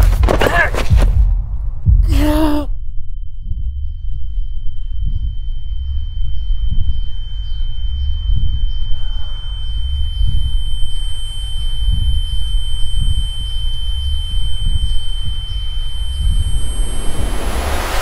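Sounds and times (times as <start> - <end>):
deep throbbing rumble: 0.9 - 18.0
high-pitched ringing tone: 2.8 - 18.0
fainter higher tones: 6.6 - 18.0.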